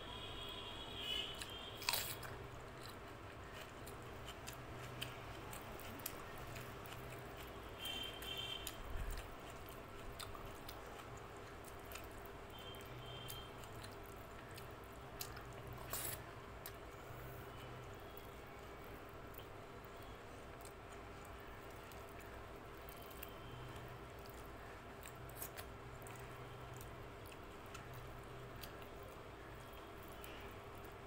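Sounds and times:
wet chewing: 1.4 - 16.8.

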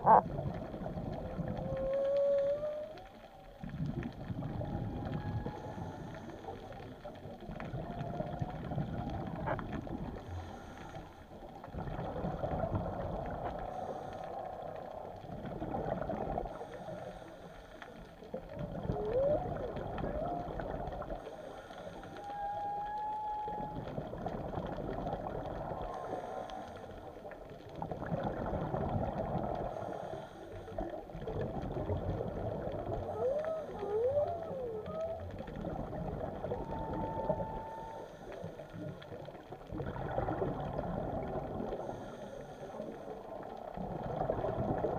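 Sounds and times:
whale calls underwater: 0.0 - 11.0, 18.6 - 27.2, 31.8 - 42.8
exhaled bubbles rumbling: 0.0 - 44.9.

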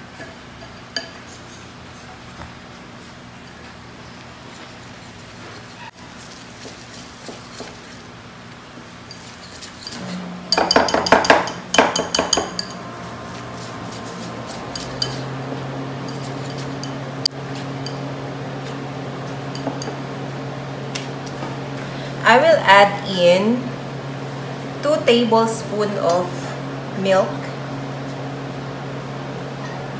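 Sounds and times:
steady low hum: 0.0 - 29.9
whisk clinking against glass bowl: 9.1 - 12.8, 14.0 - 15.3.

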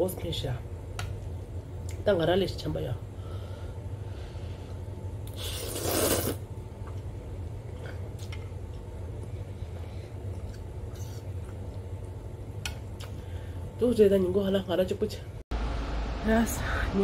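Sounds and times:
steady low hum: 0.0 - 17.0
slurping noodles: 5.3 - 6.4.

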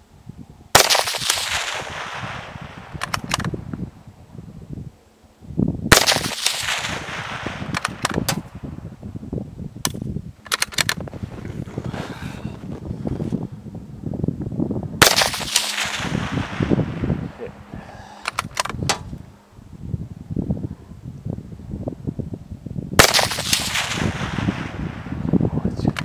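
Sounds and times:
rifle shots echoing: 0.8 - 3.5, 5.9 - 8.5, 15.0 - 17.1, 23.0 - 25.1
sharp clicks: 2.9 - 3.6, 7.6 - 8.4, 9.8 - 11.0, 18.2 - 19.0.

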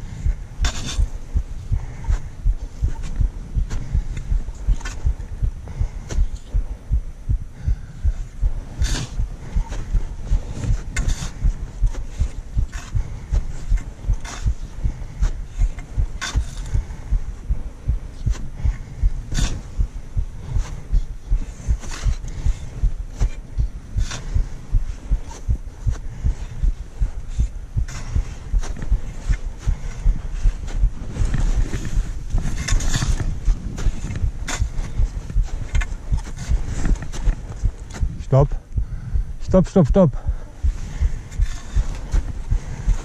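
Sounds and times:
footsteps in snow: 8.2 - 38.5, 40.5 - 43.0.

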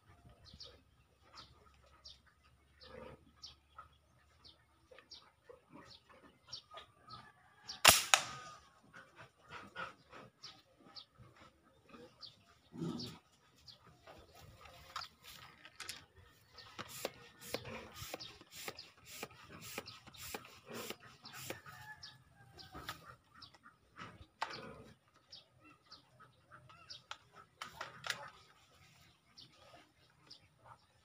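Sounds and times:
chickens clucking: 8.4 - 30.8.

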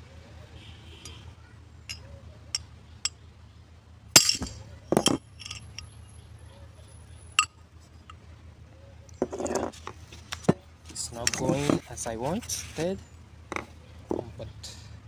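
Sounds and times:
hammer striking metal bearing: 4.2 - 5.6.

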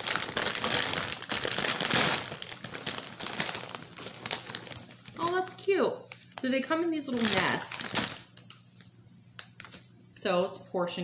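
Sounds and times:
plastic bag crinkling: 0.0 - 8.6, 9.4 - 9.8.

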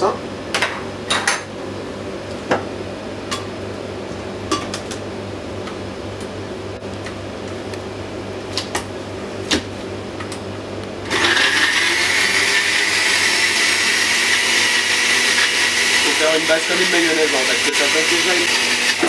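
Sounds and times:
blender running: 11.0 - 19.0.

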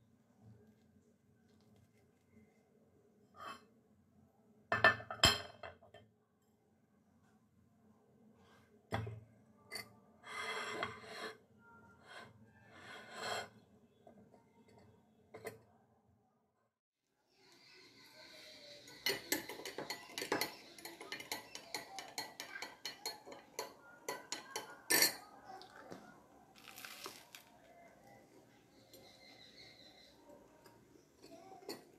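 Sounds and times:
glassware clinking on countertop: 4.7 - 6.0, 19.0 - 25.3.

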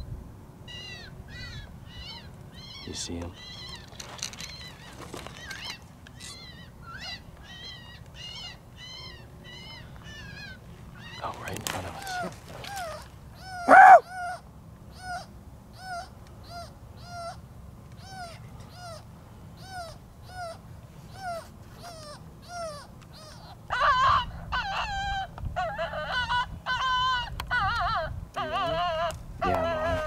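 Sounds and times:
wavering yips and howls: 0.7 - 30.0
electronic animal call: 13.4 - 14.4.

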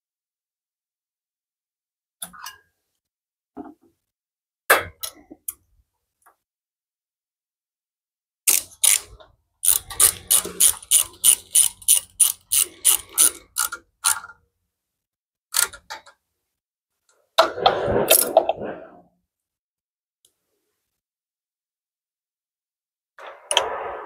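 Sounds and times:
socket ratchet clicking: 8.5 - 14.3.

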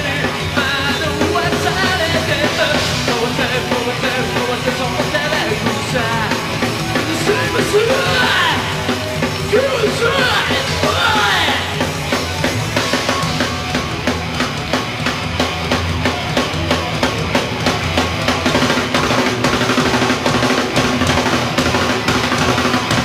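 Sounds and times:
bass and guitar: 0.0 - 23.0
rapid drum hits: 0.0 - 23.0.

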